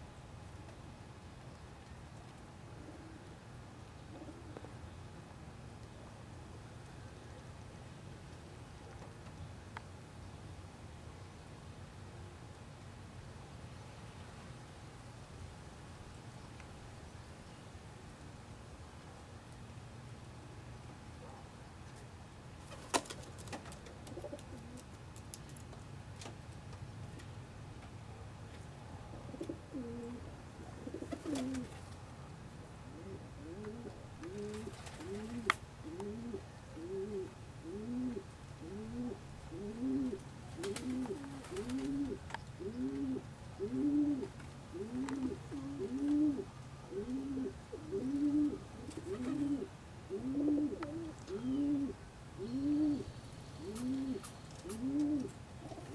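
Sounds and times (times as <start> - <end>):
pigeons cooing: 2.8 - 3.3, 4.1 - 4.7, 24.0 - 24.9, 29.1 - 31.9, 32.9 - 55.9.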